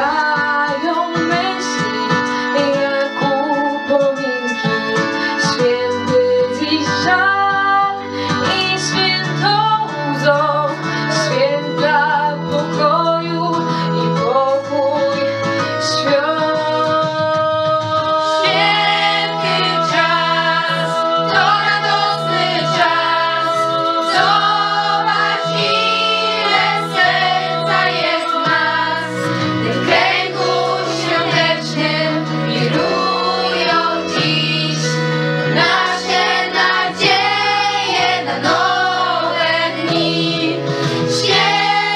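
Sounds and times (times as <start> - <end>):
instrumental accompaniment: 0.0 - 41.9
girls' vocal group singing: 18.2 - 41.9.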